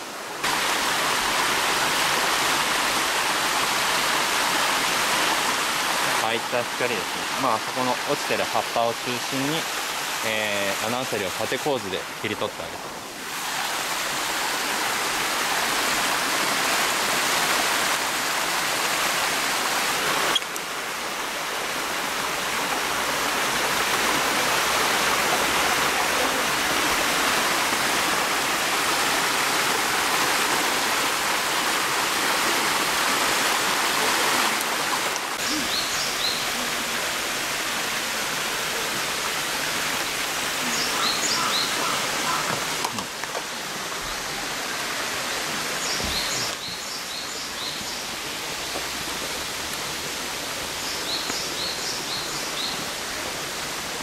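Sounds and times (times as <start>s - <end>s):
stream running over stones: 0.0s - 54.0s.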